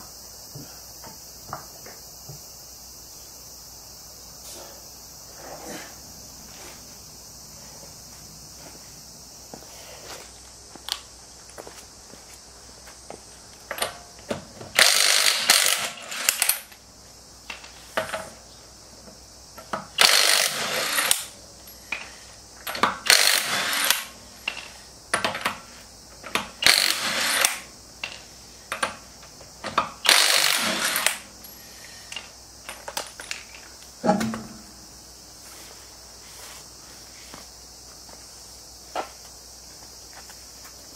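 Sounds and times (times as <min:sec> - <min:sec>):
impact wrench bursts: 0:14.7 - 0:16.8, 0:19.8 - 0:25.5, 0:26.3 - 0:28.9, 0:29.7 - 0:33.0.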